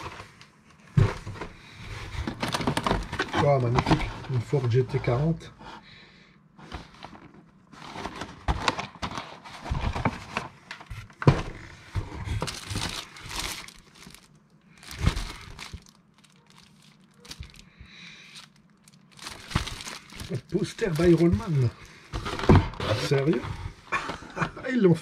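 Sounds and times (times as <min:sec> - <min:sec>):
packaging crumpling and tearing: 0:02.2 - 0:04.0, 0:12.3 - 0:23.4.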